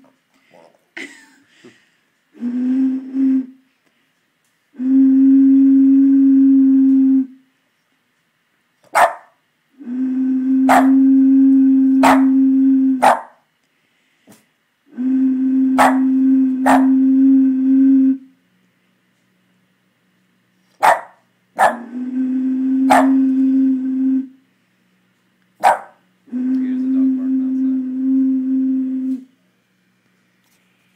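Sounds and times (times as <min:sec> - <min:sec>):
bottle blown low hoots: 0:02.3 - 0:03.6, 0:04.8 - 0:07.5, 0:09.8 - 0:13.0, 0:14.9 - 0:18.4, 0:21.6 - 0:24.4, 0:26.2 - 0:29.3
dog barking: 0:08.9 - 0:09.4, 0:10.7 - 0:11.0, 0:12.0 - 0:12.4, 0:13.0 - 0:13.4, 0:15.8 - 0:17.0, 0:20.8 - 0:21.9, 0:22.9 - 0:23.3, 0:25.6 - 0:26.0.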